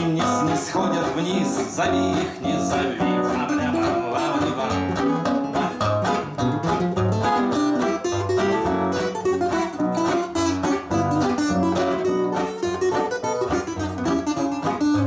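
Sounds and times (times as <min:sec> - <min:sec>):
acoustic guitars playing: 0:00.0 - 0:15.0.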